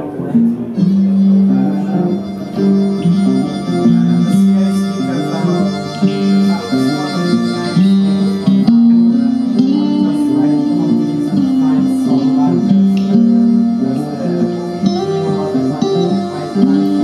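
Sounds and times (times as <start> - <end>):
music over loudspeakers: 0.0 - 17.0.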